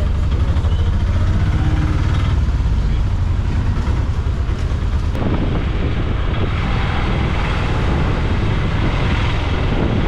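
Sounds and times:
road noise: 0.0s - 10.0s
vehicle low rumble: 0.0s - 10.0s
wind buffeting microphone: 3.4s - 10.0s.

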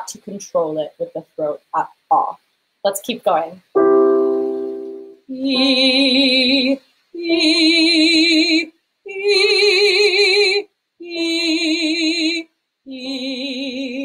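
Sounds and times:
woman singing held notes: 4.8s - 7.6s.

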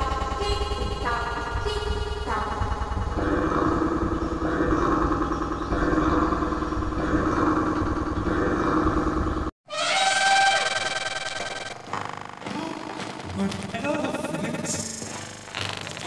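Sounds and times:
distorted children's songs: 0.0s - 4.9s
low rumble: 0.0s - 9.5s.

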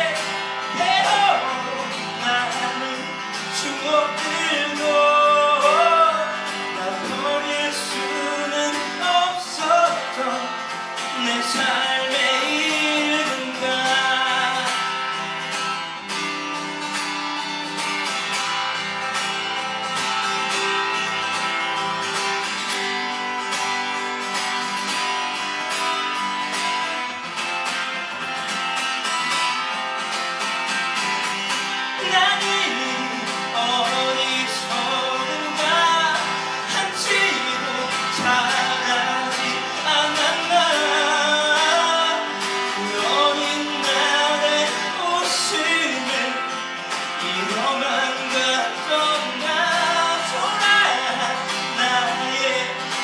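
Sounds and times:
man singing: 0.0s - 16.3s, 31.5s - 53.0s
strummed acoustic guitar: 0.0s - 53.0s.

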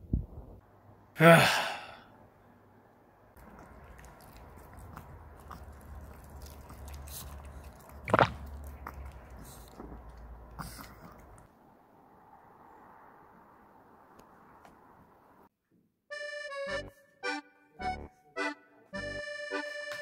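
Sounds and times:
loud sigh: 1.2s - 2.1s
dog chewing crunchy treat: 3.4s - 11.5s.

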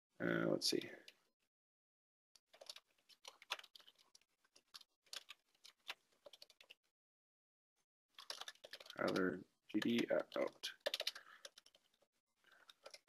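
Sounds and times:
faint typing on a keyboard: 0.6s - 1.3s, 2.4s - 6.8s, 8.1s - 13.0s.

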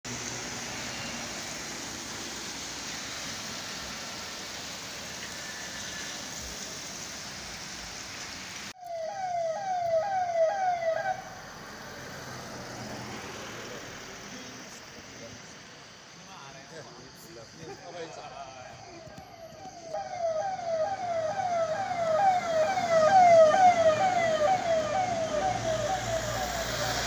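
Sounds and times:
passing traffic: 0.0s - 27.0s
street noise hiss: 0.1s - 27.0s
vehicle siren whooping: 8.8s - 11.8s, 18.9s - 27.0s.

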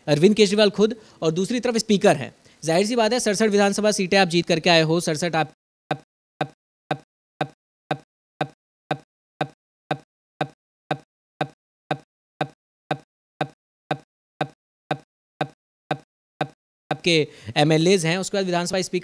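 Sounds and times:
man's voice stuttering in a loop: 16.9s - 19.0s.

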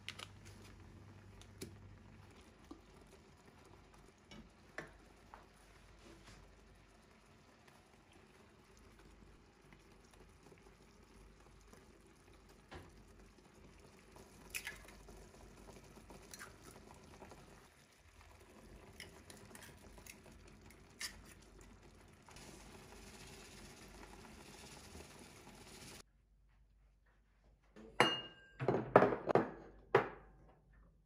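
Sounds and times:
sauce simmering in pan: 0.1s - 26.1s
eggs cracking: 14.4s - 15.2s, 16.1s - 16.8s, 18.8s - 21.7s.

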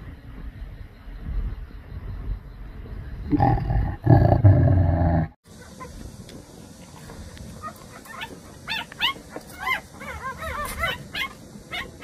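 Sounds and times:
puppies whimpering: 7.6s - 12.0s.

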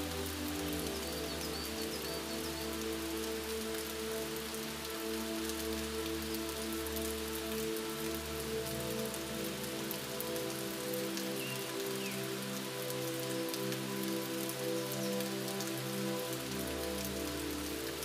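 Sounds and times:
ambient music low held notes: 0.0s - 18.0s
steady rain: 0.0s - 18.0s.

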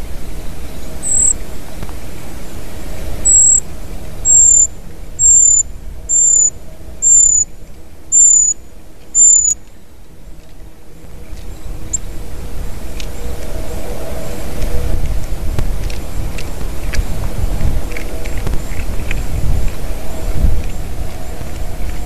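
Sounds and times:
small bird high-pitched call: 0.8s - 1.4s, 3.2s - 3.6s, 4.2s - 7.5s, 8.1s - 9.7s.

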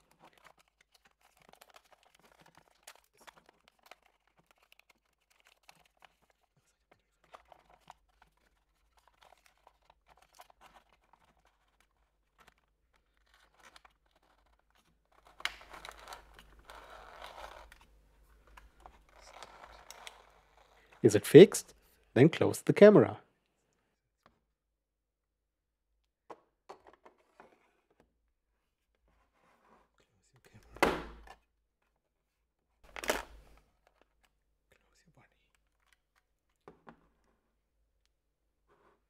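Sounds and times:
paper rustling: 0.0s - 21.5s.

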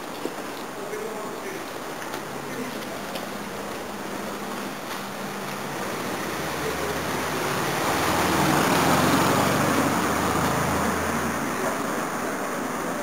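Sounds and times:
street traffic: 0.0s - 13.0s
vehicle passing close by: 4.7s - 13.0s.

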